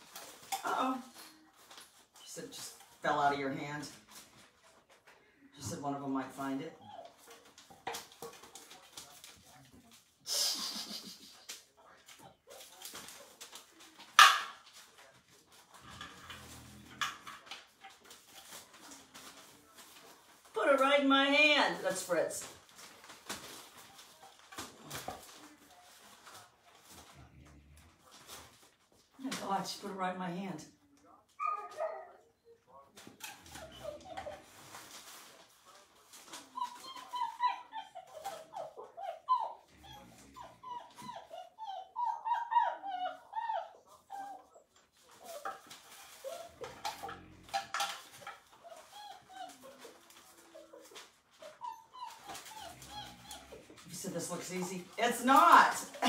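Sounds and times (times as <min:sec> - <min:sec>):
puppy growling: 0:15.1 - 0:19.3, 0:23.5 - 0:29.1, 0:33.0 - 0:35.0, 0:36.2 - 0:56.0
puppy yipping: 0:31.4 - 0:32.6, 0:36.3 - 0:47.1, 0:48.1 - 0:53.7.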